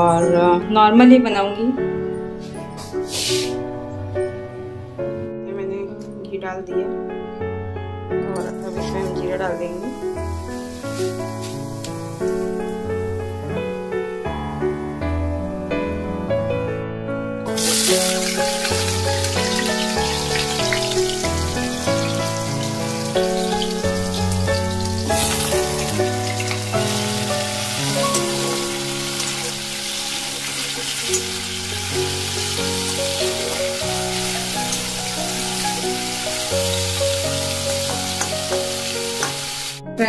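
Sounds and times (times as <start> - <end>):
slow melodic background music: 0.0 - 40.0
potatoes sizzling in oil: 8.7 - 12.7, 17.5 - 39.8.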